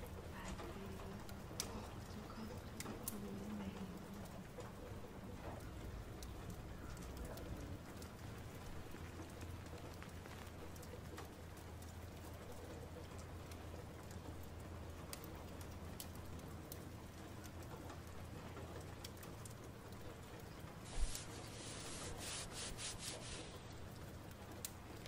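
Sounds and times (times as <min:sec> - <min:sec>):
light ticks: 0:00.1 - 0:21.3, 0:23.6 - 0:25.0
soft hiss: 0:19.8 - 0:25.0.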